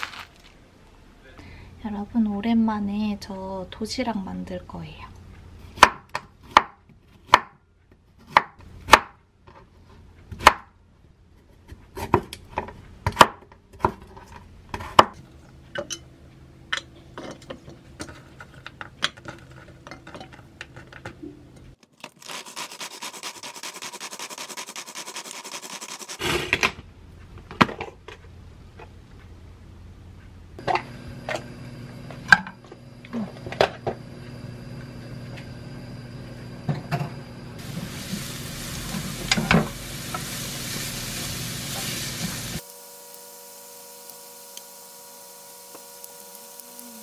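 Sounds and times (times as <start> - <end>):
knife chopping on wooden board: 5.8 - 7.6, 8.2 - 9.2, 10.3 - 10.7.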